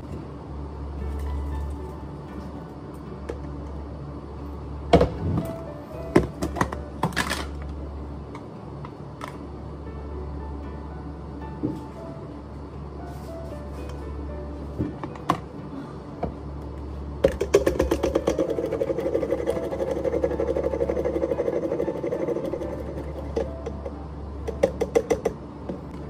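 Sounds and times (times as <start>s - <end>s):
soft background music: 0.0s - 26.0s
small machine pulsing: 17.4s - 25.3s.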